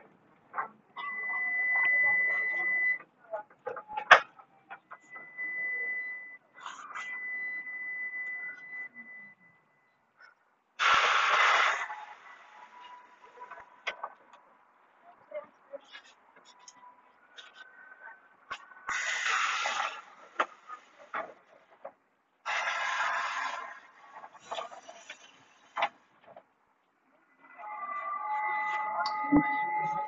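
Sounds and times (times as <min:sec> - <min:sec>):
loud hiss: 0:10.8 - 0:12.2, 0:18.9 - 0:20.3, 0:22.5 - 0:23.9.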